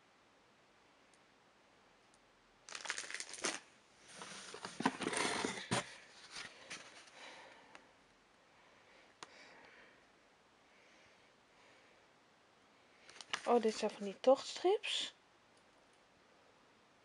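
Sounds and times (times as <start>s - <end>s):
cardboard rustling and scraping: 3.3s - 7.2s.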